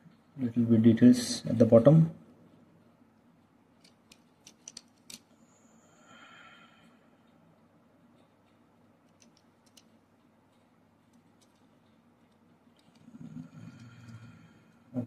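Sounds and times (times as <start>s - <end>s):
toy car clicks and taps: 3.8s - 5.2s, 9.1s - 10.0s.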